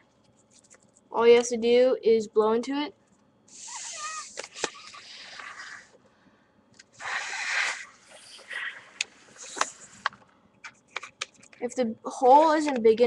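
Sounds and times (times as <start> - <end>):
breath blowing into paper balloon: 3.5 - 6.0, 7.0 - 10.0.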